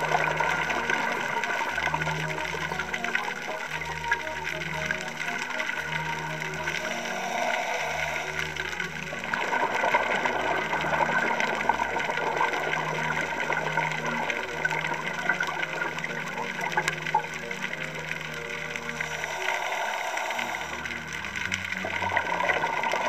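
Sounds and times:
diver's exhaled air bubbling: 0:06.6 - 0:12.6, 0:18.9 - 0:23.0.

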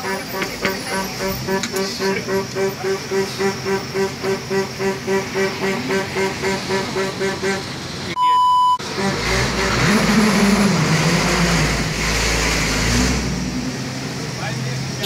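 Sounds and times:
road din: 0:00.0 - 0:08.2, 0:08.8 - 0:15.0
vehicle engine rumble: 0:00.0 - 0:08.2, 0:08.8 - 0:15.0
loud beep tone: 0:08.2 - 0:08.8.

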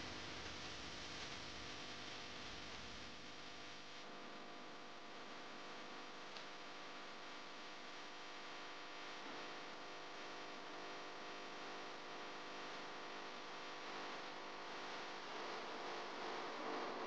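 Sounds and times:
faint hum with hiss: 0:00.0 - 0:17.0.

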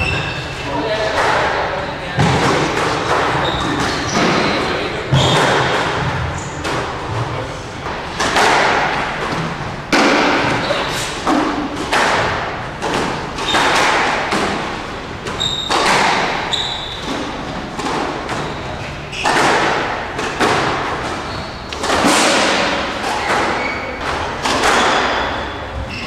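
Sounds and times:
squash ball hitting walls: 0:00.0 - 0:26.0
short high squeaks: 0:15.4 - 0:17.1, 0:23.2 - 0:24.0.

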